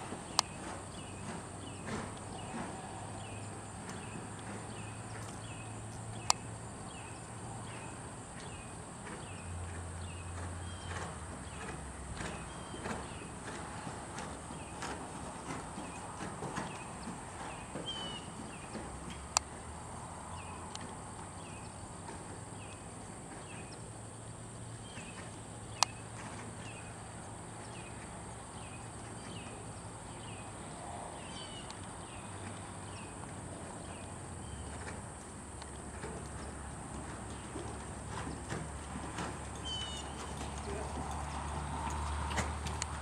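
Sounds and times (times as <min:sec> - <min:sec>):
horse hoofbeats on sand: 0:00.0 - 0:43.0.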